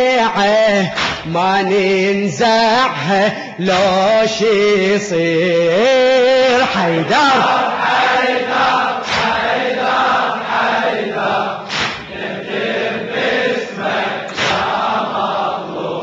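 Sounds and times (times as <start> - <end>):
unison chest-beating strikes: 0.8 - 1.4, 8.6 - 9.6, 11.6 - 12.3, 14.2 - 15.0
crowd of men chanting: 6.2 - 16.0.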